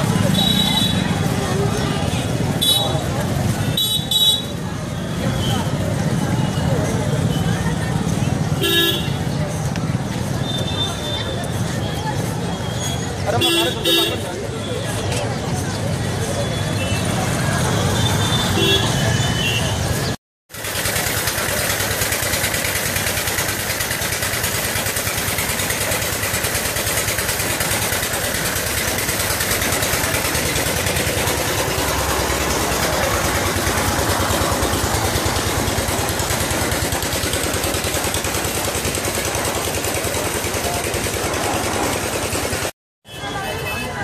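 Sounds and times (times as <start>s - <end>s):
engine running with rapid pulsing: 20.5s - 42.7s.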